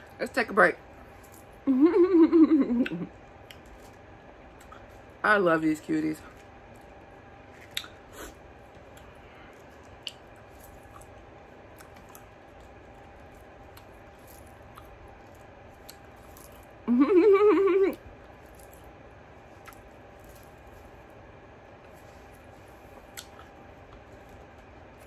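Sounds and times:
person humming mmm: 0:01.7 - 0:03.1, 0:16.9 - 0:18.0
mouth clicks from chewing: 0:07.6 - 0:08.0.

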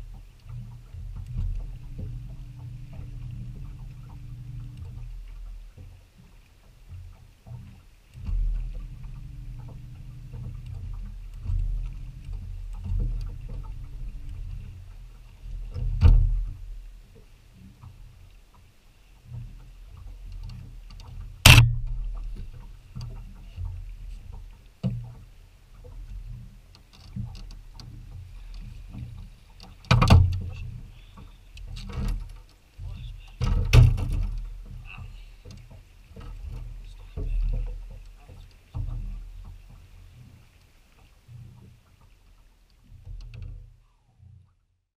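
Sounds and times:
wind rumbling on microphone: 0:00.0 - 0:18.5, 0:19.1 - 0:40.6
gear knocking on boat deck: 0:00.6 - 0:06.0, 0:06.9 - 0:17.2, 0:19.4 - 0:25.2, 0:29.0 - 0:39.7.

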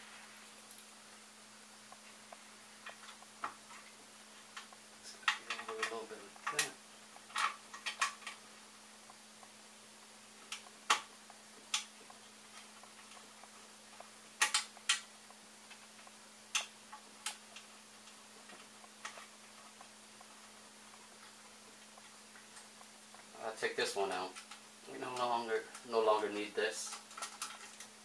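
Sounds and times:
steady low hum: 0:00.0 - 0:28.0
plastic parts clicking and tapping: 0:04.6 - 0:08.4, 0:14.4 - 0:15.1, 0:26.8 - 0:28.0.

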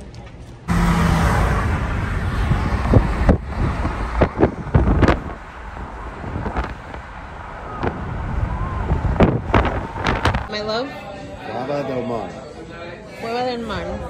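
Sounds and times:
road rumble and wind noise: 0:00.0 - 0:12.3.

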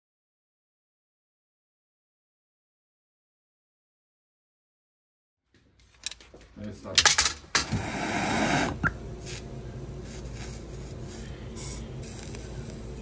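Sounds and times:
gas torch hissing: 0:07.6 - 0:13.0.

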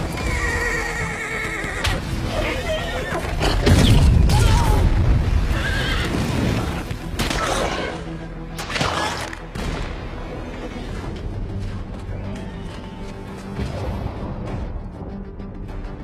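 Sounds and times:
horses whinnying: 0:00.0 - 0:03.7, 0:04.5 - 0:06.7
orchestral music: 0:00.0 - 0:16.0.

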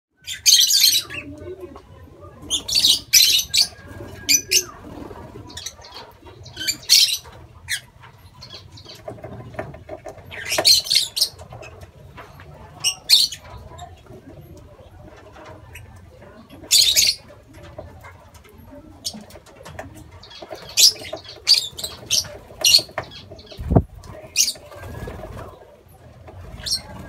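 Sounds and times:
lovebirds calling shrilly: 0:02.5 - 0:09.0, 0:20.2 - 0:25.2, 0:26.5 - 0:27.0
wings flapping: 0:19.1 - 0:25.7.

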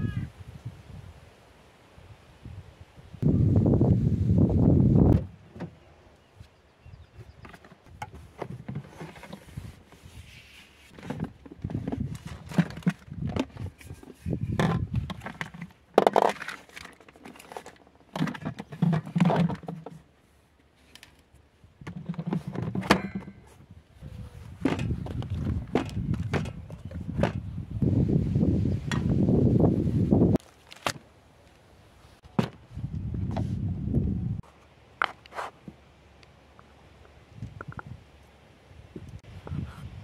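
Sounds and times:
thunks and knocks of handling: 0:24.6 - 0:27.5.

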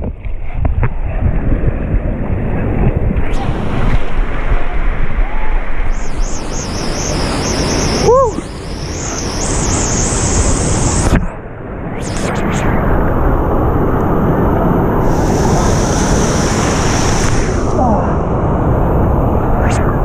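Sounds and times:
wind buffeting microphone: 0:00.0 - 0:11.4, 0:12.0 - 0:20.0
high hiss: 0:05.4 - 0:11.2, 0:12.0 - 0:20.0
short voice-like call: 0:08.0 - 0:08.5
waterfall and rapids rushing: 0:15.0 - 0:19.3.

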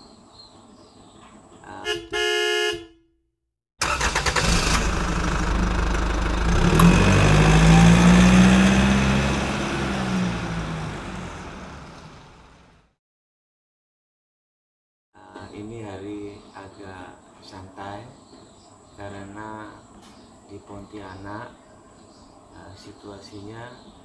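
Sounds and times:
car horn toot: 0:01.8 - 0:03.1
car engine passing: 0:03.8 - 0:12.8.

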